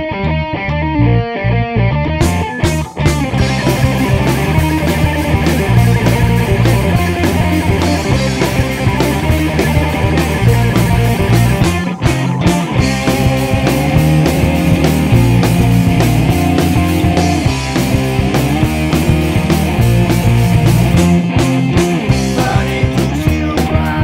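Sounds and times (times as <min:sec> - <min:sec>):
bass guitar: 0:00.0 - 0:24.0
electric guitar: 0:00.0 - 0:24.0
drum kit beat: 0:02.2 - 0:24.0.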